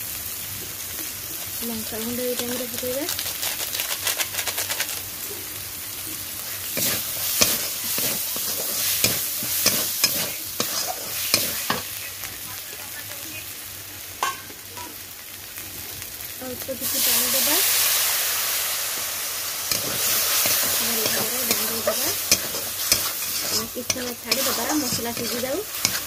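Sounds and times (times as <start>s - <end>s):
food sizzling in oil: 0.0s - 26.0s
spatula scraping metal pan: 6.8s - 11.8s, 19.7s - 26.0s.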